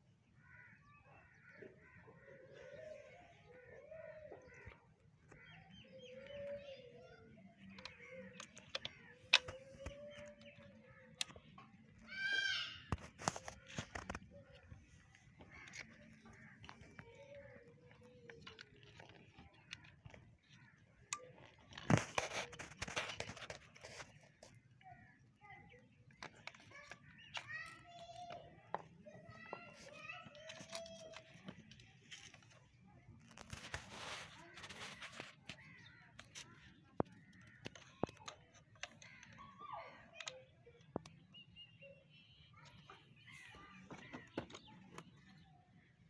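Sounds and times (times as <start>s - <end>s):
faint clicks and rustles: 1.4s - 46.0s
rough scraping and rustling: 7.6s - 37.9s.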